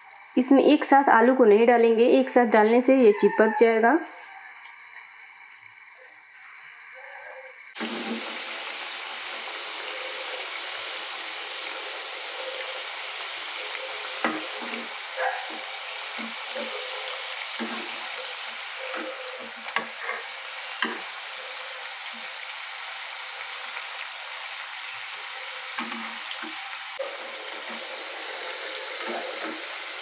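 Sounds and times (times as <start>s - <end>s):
potatoes sizzling in hot oil: 7.7s - 30.0s.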